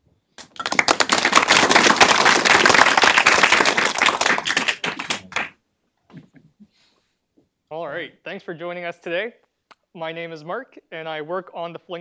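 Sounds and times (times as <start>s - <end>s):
audience applauding: 0.4s - 5.5s.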